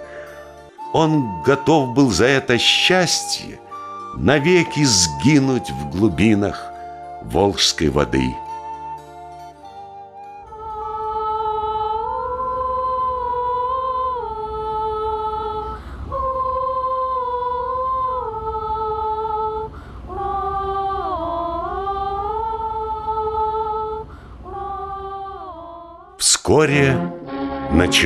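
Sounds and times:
singers breathing: 0.0 - 0.9, 15.7 - 16.2, 19.7 - 20.2, 24.0 - 24.5
women singing unaccompanied: 10.5 - 26.2.

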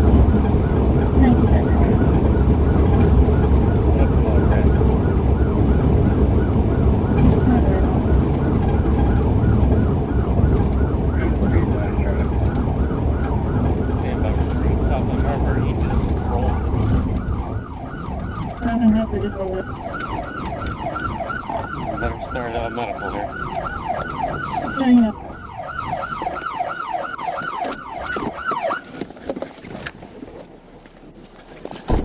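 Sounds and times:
police siren yelping: 0.0 - 29.2
car engine rumble: 0.0 - 32.0
low horn blasts: 5.6 - 17.6, 20.5 - 26.4.

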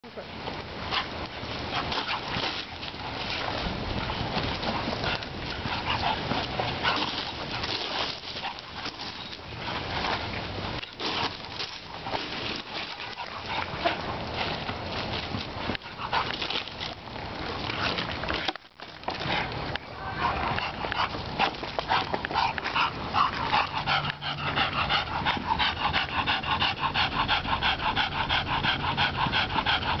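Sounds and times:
puppy panting: 1.7 - 10.2, 11.2 - 14.6, 15.6 - 16.7, 20.2 - 30.0.

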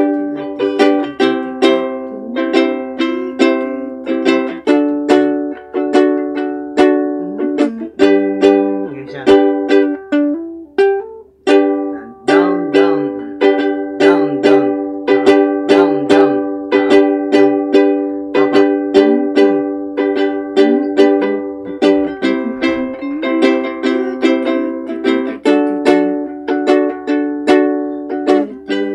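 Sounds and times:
ukulele strumming chords: 0.0 - 28.9.

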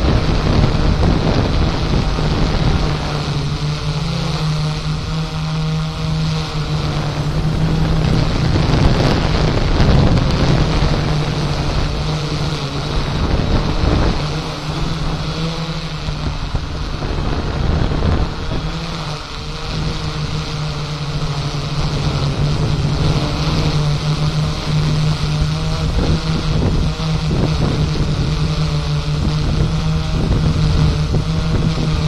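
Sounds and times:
drone propellers humming: 0.0 - 32.0
wind on microphone: 0.0 - 32.0.

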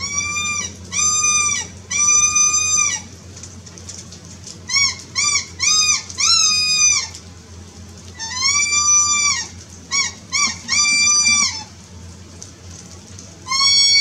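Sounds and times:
electronic animal distress calls: 0.0 - 3.1, 4.7 - 7.2, 8.2 - 11.8, 13.5 - 14.0.

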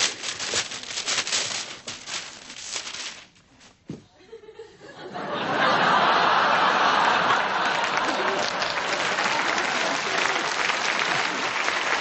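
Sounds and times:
audience laughing: 4.2 - 12.0
applause: 6.2 - 12.0.

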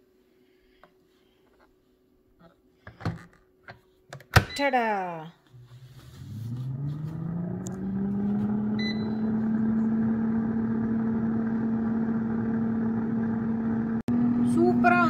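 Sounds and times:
air fryer fan humming: 6.4 - 15.0
short beep: 8.8 - 9.4.

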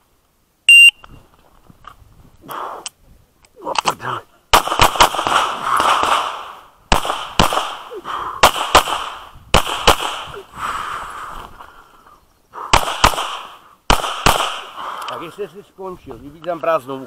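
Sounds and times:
handgun shots in quick pairs: 4.6 - 7.8, 12.7 - 14.7.

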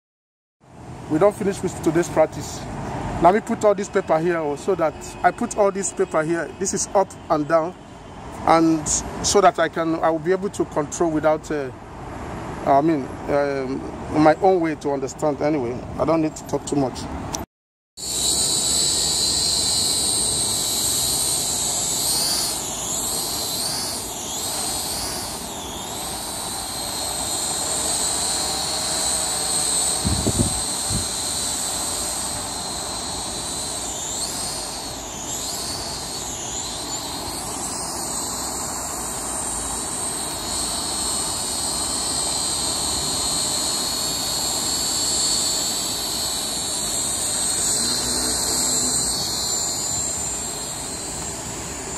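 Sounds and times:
drone propellers whining: 18.0 - 51.9.

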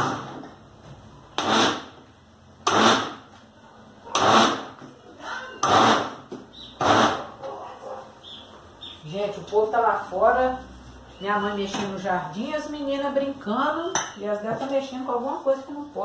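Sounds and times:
blender pulsing: 2.6 - 3.2, 4.2 - 4.8, 5.6 - 6.2.

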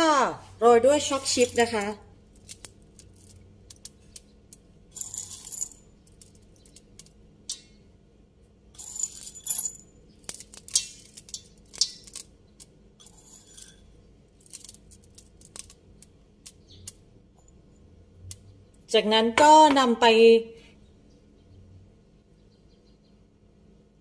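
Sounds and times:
chocolate chips clicking and rattling: 1.1 - 7.2, 8.8 - 17.0.

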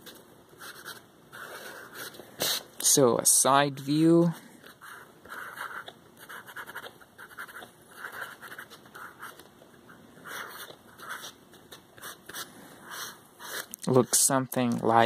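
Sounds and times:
pencil scratching on paper: 0.6 - 2.6, 4.6 - 9.5, 10.2 - 14.2.

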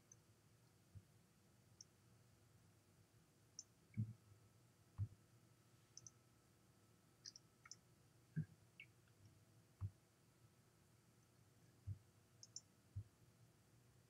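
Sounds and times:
computer clicks: 7.2 - 7.8, 12.4 - 12.7.

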